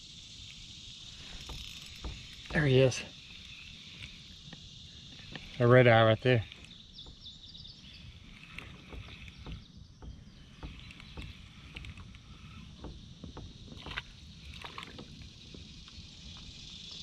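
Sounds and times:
clicks and knocks in kayak: 1.2 - 3.1, 4.0 - 16.5
fishing reel cranking: 1.2 - 9.7.

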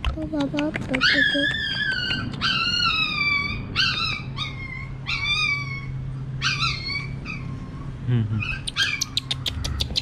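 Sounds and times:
baby monkey crying: 8.4 - 10.0.

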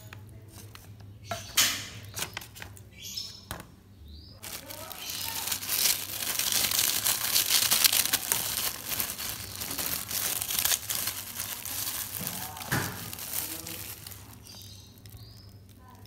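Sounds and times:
crackers landing with dry crackle: 4.4 - 15.8
plastic bag crinkling: 4.4 - 16.0.

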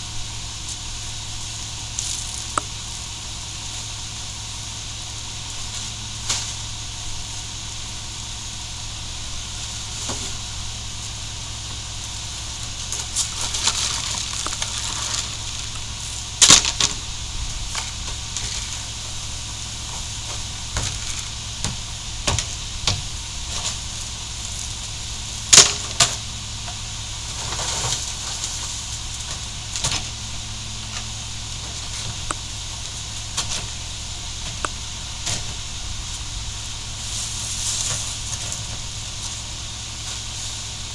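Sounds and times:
garbage truck idling: 0.0 - 40.9
trash knocks and thuds: 16.4 - 17.1, 25.5 - 26.2.

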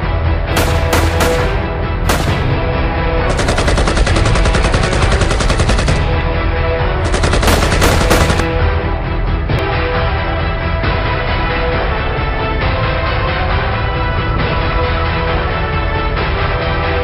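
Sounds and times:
background music: 0.0 - 17.0
machine-gun fire: 0.6 - 6.3, 7.0 - 8.8.

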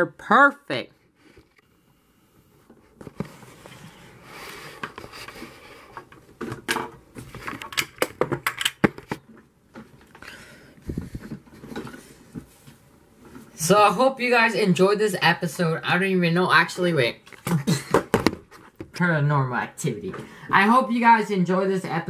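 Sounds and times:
camera handling clicks and knocks: 7.5 - 9.2.

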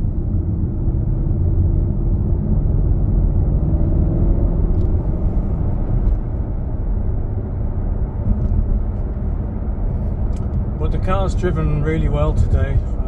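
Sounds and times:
car engine humming: 0.0 - 13.0
tyre and road rumble: 0.0 - 13.0.

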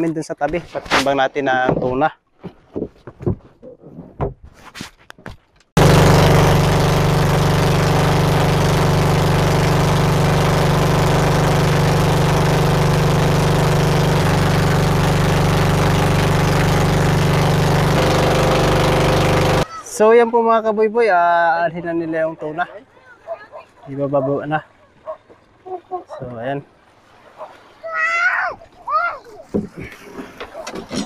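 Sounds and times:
boat engine running: 5.8 - 19.7.

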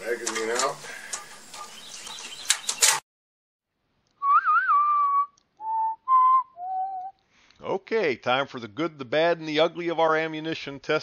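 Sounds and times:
outdoor background noise: 0.0 - 3.0, 3.7 - 11.0
sharp clicks: 0.2 - 3.0
person whistling: 4.2 - 7.2.

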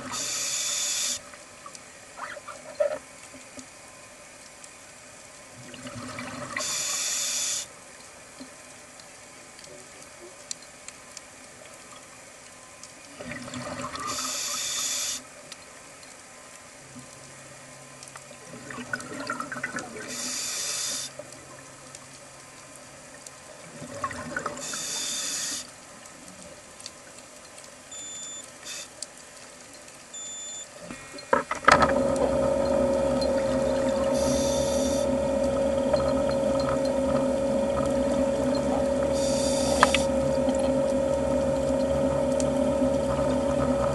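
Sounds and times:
scuba regulator breathing underwater: 33.9 - 35.5, 38.8 - 40.5.

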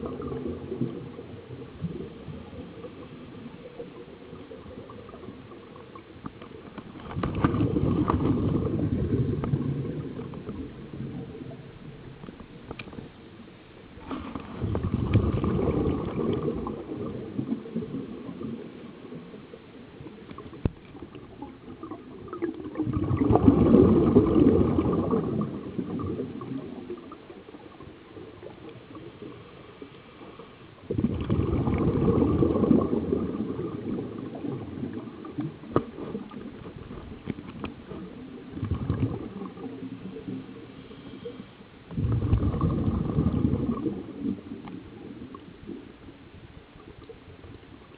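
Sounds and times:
diver's breath bubbling: 7.2 - 11.7, 14.0 - 18.7, 21.0 - 27.3, 30.9 - 37.2, 37.8 - 45.5.

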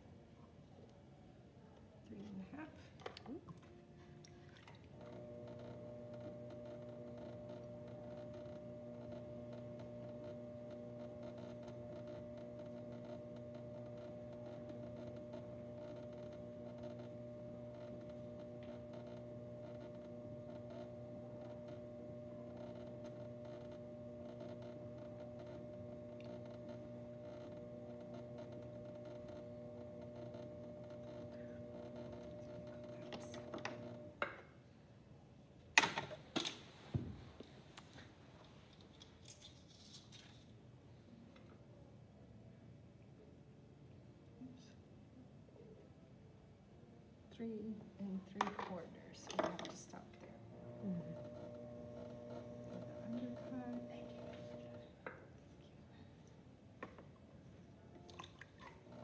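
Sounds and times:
potter's wheel motor humming: 4.9 - 34.4, 48.2 - 55.2, 58.6 - 59.0.

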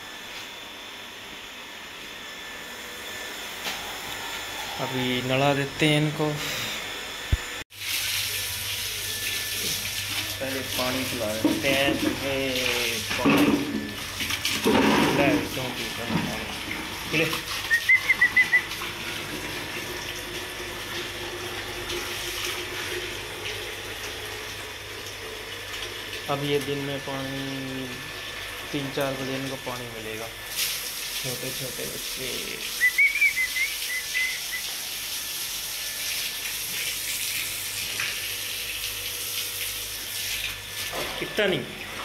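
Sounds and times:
faint pump hum: 0.0 - 42.0
water running from hose: 7.7 - 42.0
bird chirping: 32.8 - 34.4.

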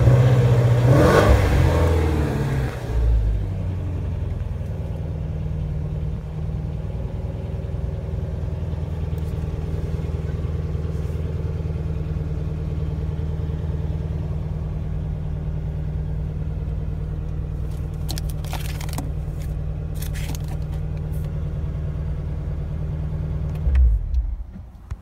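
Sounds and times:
car engine idling: 0.0 - 25.0
rustling scrapes: 17.6 - 21.3.

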